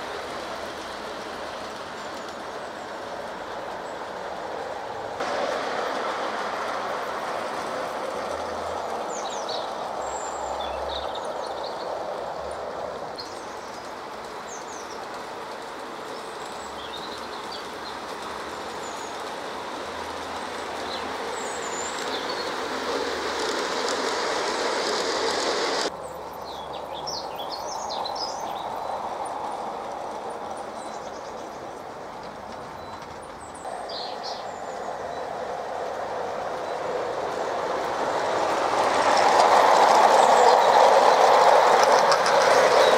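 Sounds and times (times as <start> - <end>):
model train rolling rumble: 0.0 - 42.9
birds chirping: 5.2 - 29.5, 30.1 - 42.9.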